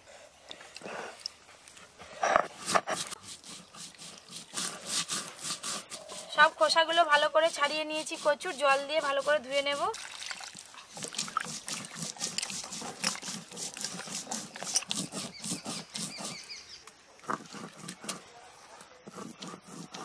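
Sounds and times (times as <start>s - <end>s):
wet rubbing and sloshing water: 2.6s - 16.6s.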